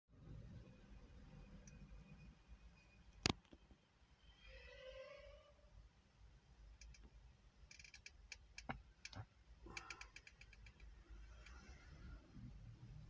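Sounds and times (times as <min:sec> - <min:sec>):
faint clicks: 0:06.8 - 0:11.8.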